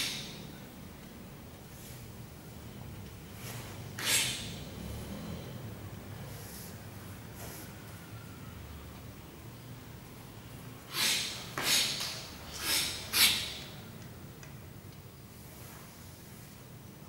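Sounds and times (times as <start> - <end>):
faint room hum: 0.0 - 17.0
short forceful exhalations: 10.9 - 13.6.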